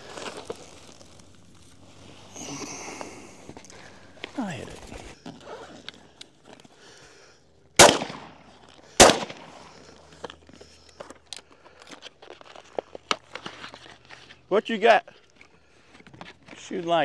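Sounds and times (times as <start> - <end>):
shotgun shots: 7.8 - 9.7.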